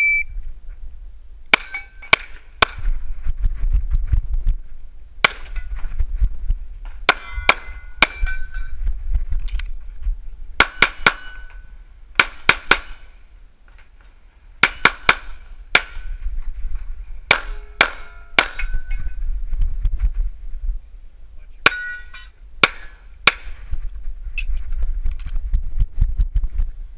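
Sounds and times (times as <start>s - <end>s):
steel targets ringing: 1.5s - 2.3s, 7.1s - 8.7s, 10.6s - 13.2s, 14.6s - 16.3s, 17.3s - 19.1s, 21.7s - 23.5s.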